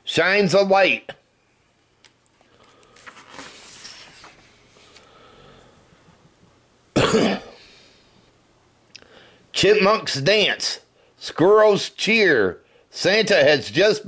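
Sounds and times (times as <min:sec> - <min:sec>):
paper page turning: 0:02.6 - 0:05.1
loud cough: 0:07.0 - 0:07.6.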